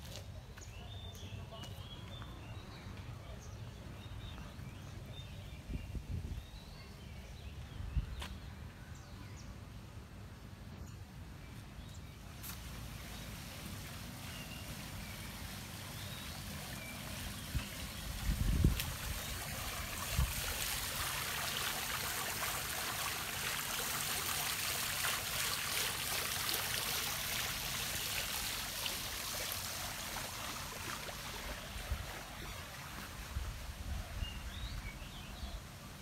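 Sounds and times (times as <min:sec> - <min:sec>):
fountain water splashing: 0:12.3 - 0:36.0.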